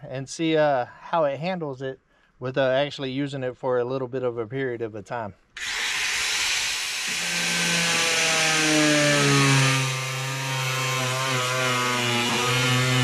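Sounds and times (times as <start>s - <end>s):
angle grinder cutting plastic: 5.6s - 13.0s.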